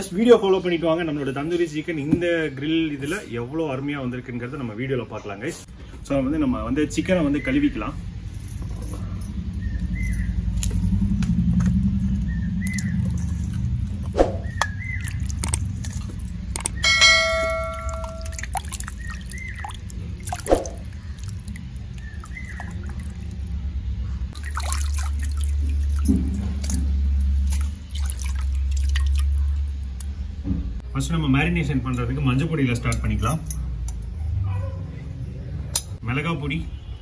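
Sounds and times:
water splashing and sloshing: 10.4 - 30.8
steel bowl ringing: 16.8 - 19.6.

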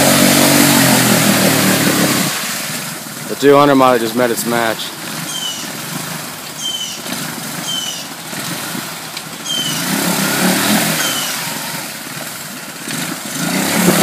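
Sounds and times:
churning through mud and water: 0.0 - 14.0
engine revving: 0.0 - 14.0
bird whistled calls: 5.2 - 5.8, 6.6 - 8.1, 9.4 - 10.0, 11.0 - 11.7.

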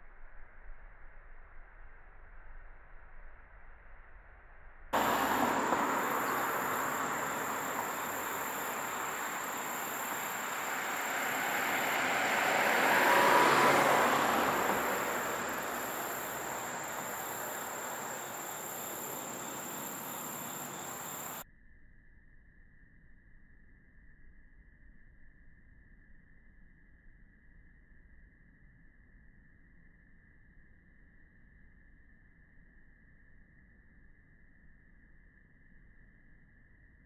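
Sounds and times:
broad rushing noise: 5.0 - 21.4
high insect trill: 5.0 - 21.4.

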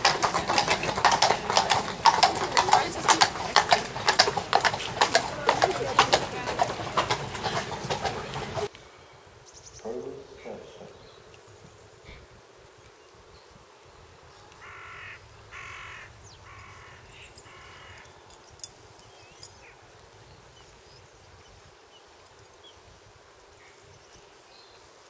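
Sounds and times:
crow cawing: 14.6 - 18.1.

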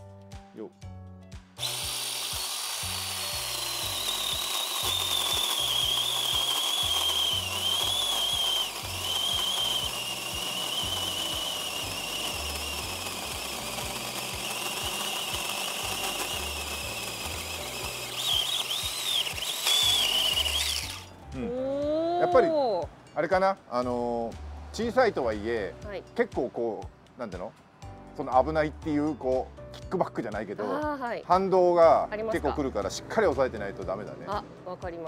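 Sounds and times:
electric chainsaw cutting wood: 1.6 - 21.2.

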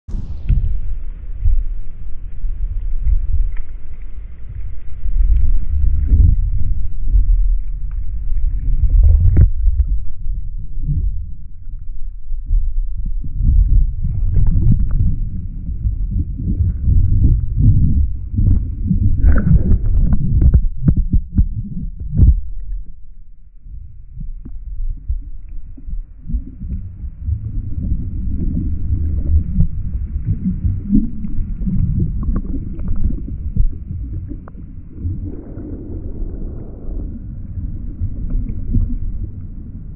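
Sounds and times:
underwater churning water rumble: 0.1 - 39.9
sharp knocks and crackles: 13.3 - 22.9.

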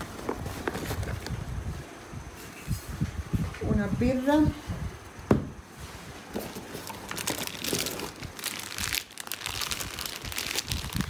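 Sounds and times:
plastic bags rustling: 6.0 - 11.0.

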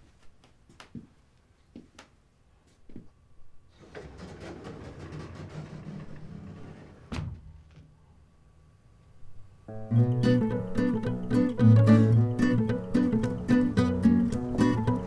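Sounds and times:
elevator doors sliding shut: 3.8 - 7.5
elevator doors thud: 3.8 - 7.7.

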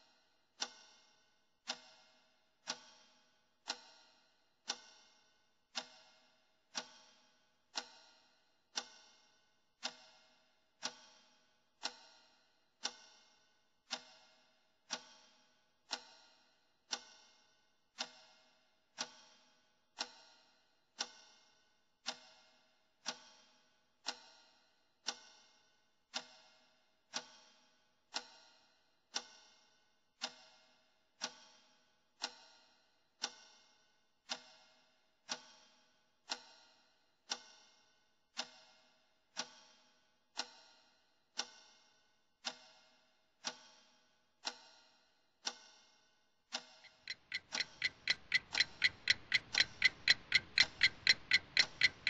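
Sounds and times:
clock ticking: 46.8 - 52.0.

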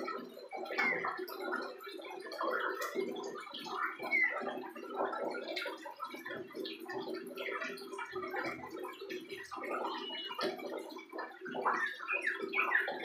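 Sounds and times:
bird twittering subsong: 4.0 - 4.4, 11.7 - 13.0.

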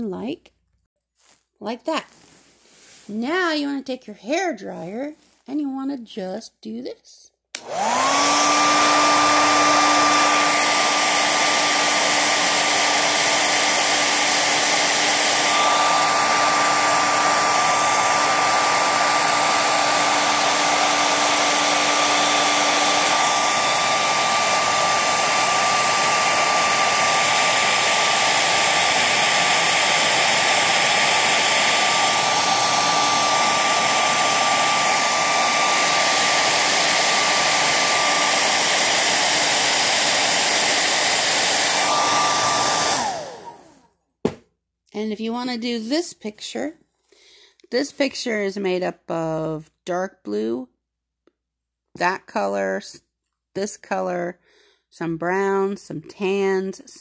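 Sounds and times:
hair dryer running: 7.5 - 44.4.

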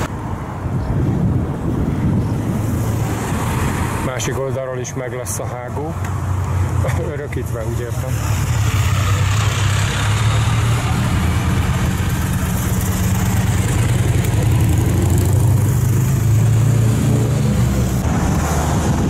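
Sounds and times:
vehicle engine running: 7.9 - 18.2.

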